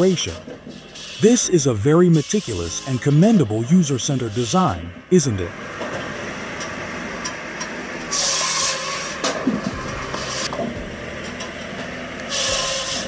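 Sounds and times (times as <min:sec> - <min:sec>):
machinery running: 0:00.0 - 0:13.0.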